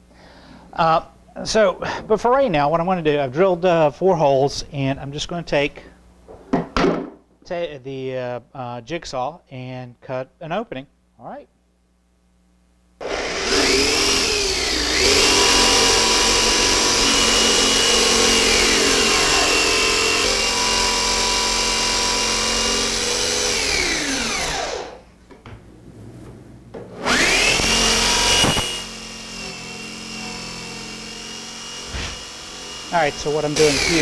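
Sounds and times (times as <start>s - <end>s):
jigsaw cutting wood: 13.0s - 25.0s, 27.0s - 34.0s.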